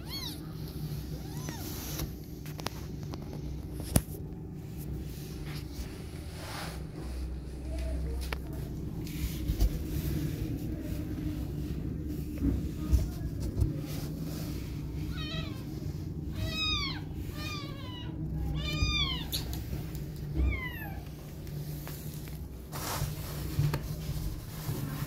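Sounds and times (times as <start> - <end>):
steady low rumble: 0.2 - 25.0
cat mewing: 16.4 - 19.5.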